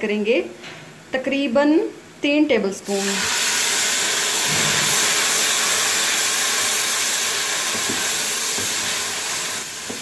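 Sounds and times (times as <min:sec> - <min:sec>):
stock sizzling in hot oil: 0:02.9 - 0:10.0.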